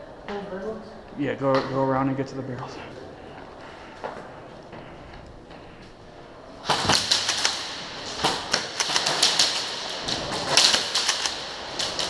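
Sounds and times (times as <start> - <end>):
airsoft guns firing: 6.6 - 12.0.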